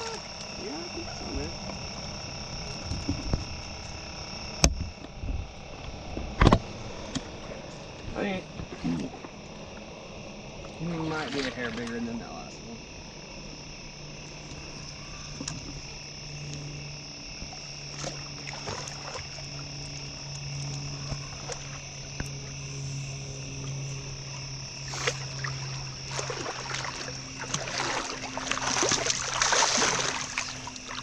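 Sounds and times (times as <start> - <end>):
night insects trilling: 0.0 - 31.0
steady low hum: 0.0 - 31.0
fish splashing at surface: 17.9 - 19.6, 24.8 - 31.0.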